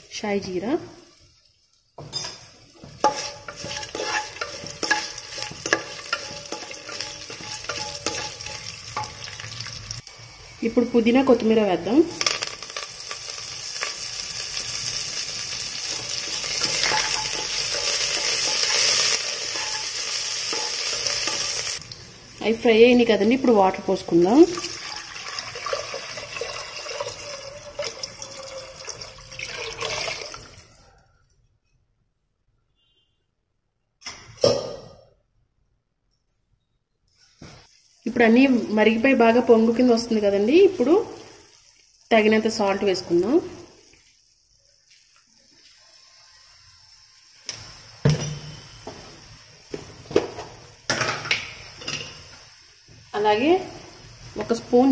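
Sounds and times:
spices sizzling in hot oil: 0:00.1 - 0:30.7, 0:37.2 - 0:54.9
spatula scraping and knocking pot: 0:02.0 - 0:09.2, 0:16.3 - 0:21.8
water pouring into pot: 0:05.1 - 0:10.2, 0:24.1 - 0:30.8.

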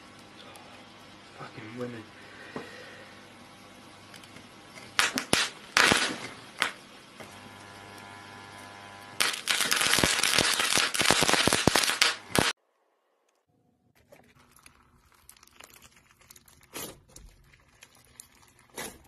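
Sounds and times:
burning metal crackling: 0:03.8 - 0:12.6
gas torch flame hissing: 0:04.8 - 0:12.6
loud sharp pops: 0:05.0 - 0:06.8, 0:09.2 - 0:12.6.

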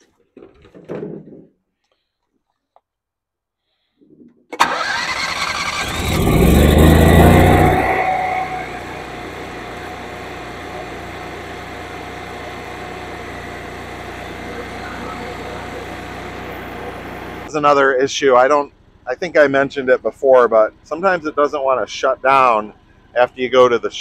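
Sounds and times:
generator engine starting and running: 0:04.5 - 0:24.0.

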